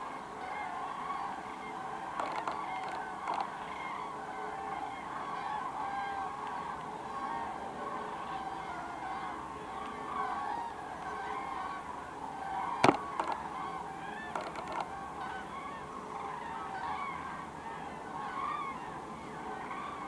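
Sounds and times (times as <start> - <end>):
flock of cranes calling: 0.0 - 20.0
small clicks: 2.2 - 3.5, 12.8 - 13.5, 14.2 - 14.9
sharp knock: 12.8 - 13.4.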